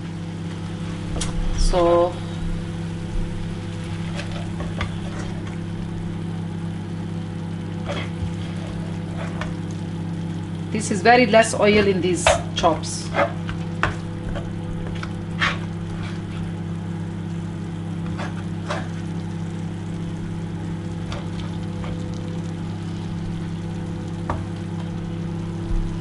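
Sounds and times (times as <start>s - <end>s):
steady low hum: 0.0s - 26.0s
spatula scraping curry in pan: 7.8s - 9.6s, 14.9s - 16.6s, 18.0s - 19.1s.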